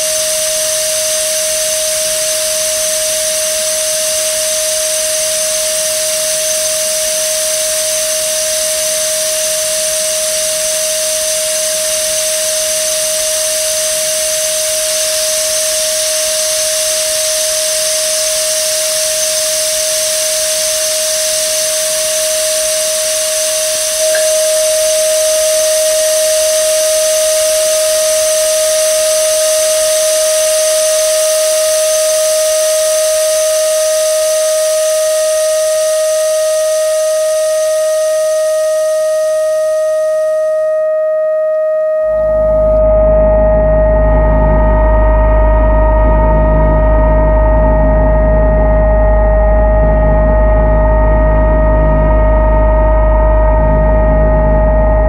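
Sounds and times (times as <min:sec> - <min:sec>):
steady single tone: 0:00.0 - 0:55.0
faint higher tones: 0:23.8 - 0:30.9, 0:42.0 - 0:55.0.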